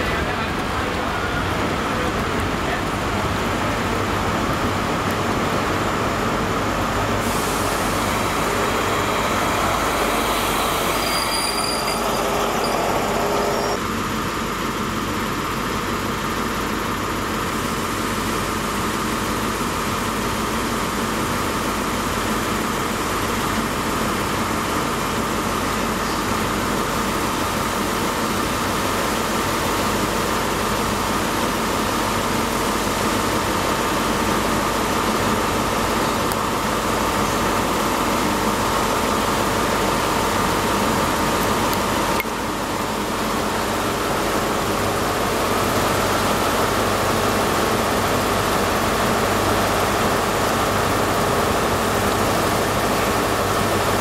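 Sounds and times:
diesel train engine: 0.0s - 54.0s
train coaches rolling past: 0.0s - 54.0s
wheel squeal: 9.6s - 13.8s.

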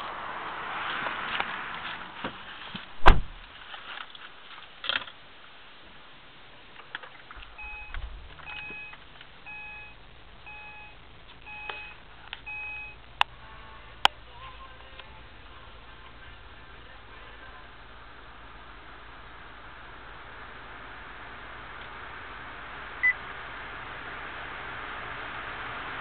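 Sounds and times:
car door slamming: 3.0s - 3.4s
car engine starting and idling: 6.3s - 26.0s
dashboard chime beeping: 7.5s - 13.0s.

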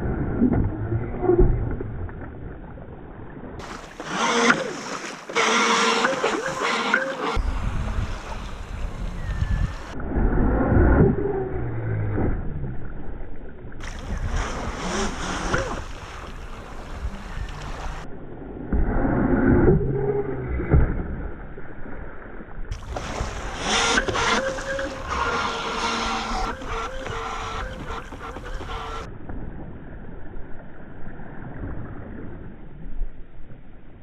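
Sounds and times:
water rushing: 0.9s - 10.0s, 13.8s - 18.2s, 22.7s - 29.2s
model boat motor: 3.6s - 10.0s, 13.8s - 18.1s, 22.8s - 29.1s.

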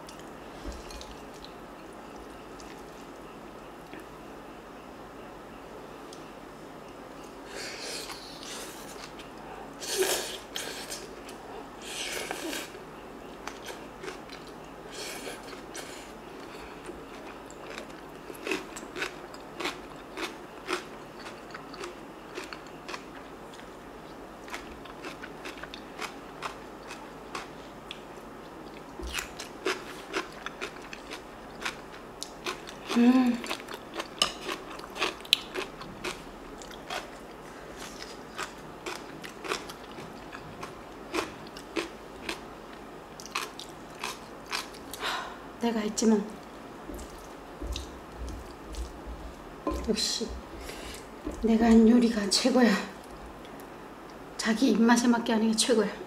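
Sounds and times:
chewing and crunching food: 12.2s - 45.0s.

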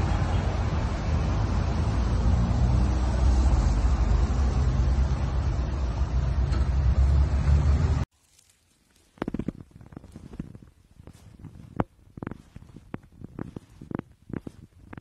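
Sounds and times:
cars passing on wet road: 0.0s - 8.0s.

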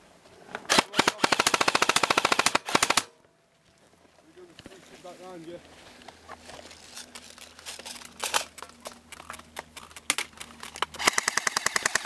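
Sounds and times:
airsoft gun full auto rattle: 0.7s - 3.1s, 7.6s - 8.6s, 9.6s - 12.0s.

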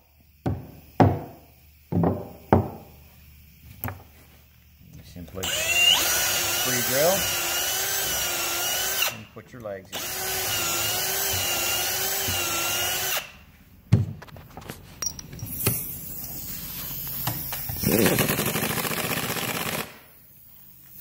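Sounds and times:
pneumatic impact wrench hammering: 0.0s - 4.1s, 5.4s - 9.3s, 9.9s - 13.4s, 15.0s - 20.4s
knocks and clicks of parts handled: 3.7s - 4.2s, 13.9s - 15.9s
cordless drill boring into wood: 5.4s - 9.3s, 9.9s - 13.4s, 17.8s - 20.0s.

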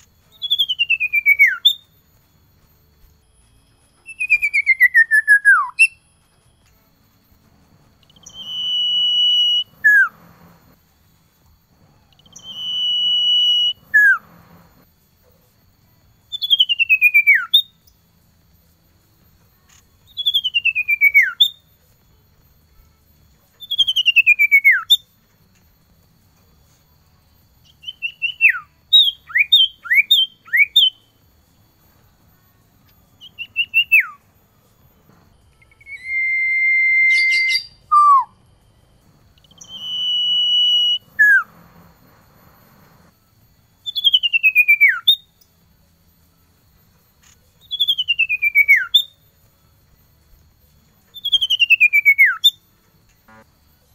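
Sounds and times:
bird singing whistled notes: 0.0s - 6.9s, 7.8s - 10.8s, 11.4s - 14.8s, 16.0s - 22.1s, 22.8s - 25.2s, 26.6s - 46.2s, 46.9s - 50.1s, 50.9s - 53.9s.

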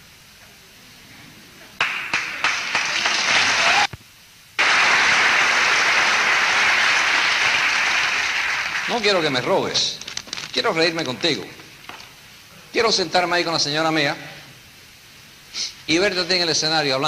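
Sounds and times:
audience applauding: 1.8s - 3.9s, 4.6s - 9.6s.

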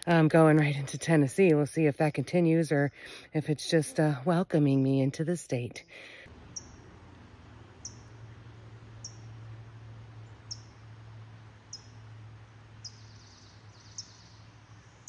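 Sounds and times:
steady low hum: 6.2s - 15.0s.

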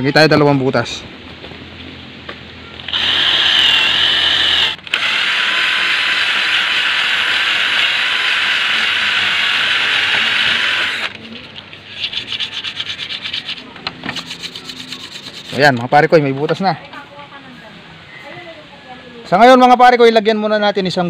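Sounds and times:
cordless drill boring wood: 2.8s - 11.2s.

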